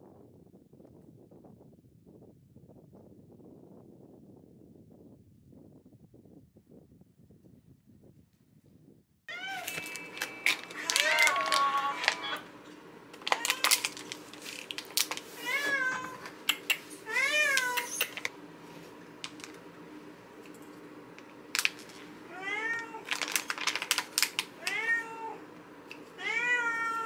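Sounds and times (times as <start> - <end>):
cats meowing: 9.3 - 12.5, 13.3 - 14.5, 15.1 - 18.2, 22.3 - 23.5, 24.5 - 25.5, 26.2 - 27.0
scissors cutting plastic pouch: 9.6 - 12.4, 13.2 - 15.2, 23.1 - 24.5.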